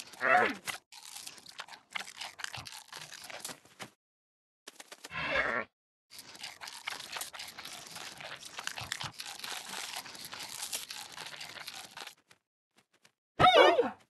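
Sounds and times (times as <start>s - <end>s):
crinkling crackling rustle: 0.0s - 4.0s, 6.1s - 13.2s.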